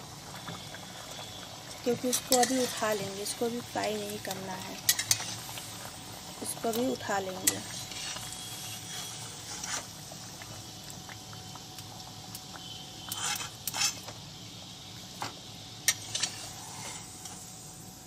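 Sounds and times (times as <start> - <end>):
food sizzling in hot oil: 0.0 - 18.0
metal spatula scraping wok: 1.9 - 3.2, 4.8 - 5.6, 7.4 - 9.9, 13.1 - 14.0, 15.9 - 17.3.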